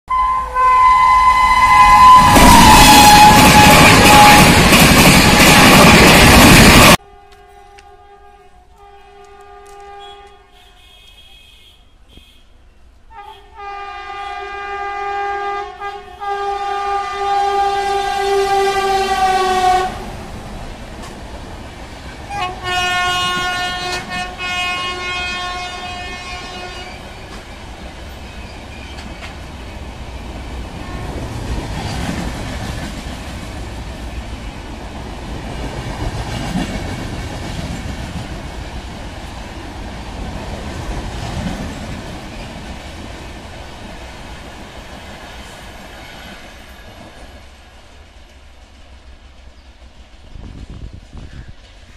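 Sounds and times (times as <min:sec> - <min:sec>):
locomotive horn blasts: 0:00.1 - 0:06.0, 0:06.8 - 0:20.0, 0:22.3 - 0:27.1, 0:30.8 - 0:31.3
train wheels rumbling on rails: 0:01.2 - 0:08.0, 0:17.2 - 0:51.9.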